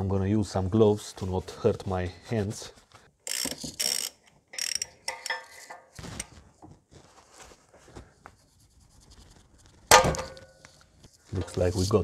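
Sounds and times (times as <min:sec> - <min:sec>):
wrench clinking on metal: 0:03.3 - 0:06.0.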